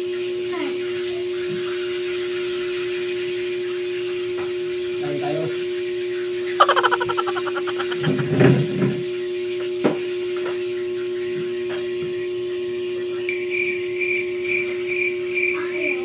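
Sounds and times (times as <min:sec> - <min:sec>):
high chirping: 0:06.6 - 0:08.2.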